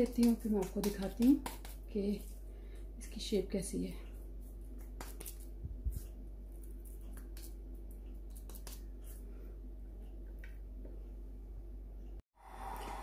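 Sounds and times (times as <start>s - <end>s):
hands squishing meat mixture: 0.0s - 2.4s
steady low hum: 0.0s - 13.0s.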